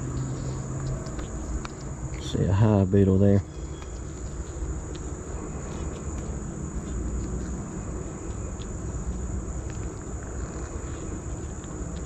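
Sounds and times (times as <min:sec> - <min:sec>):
bees humming: 0:00.0 - 0:12.0
high-pitched insect trill: 0:00.0 - 0:12.0.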